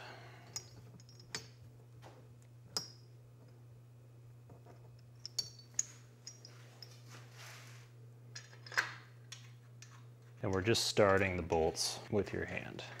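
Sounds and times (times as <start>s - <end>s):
faint low hum: 0.0s - 13.0s
metallic clicks of small parts: 4.9s - 6.5s.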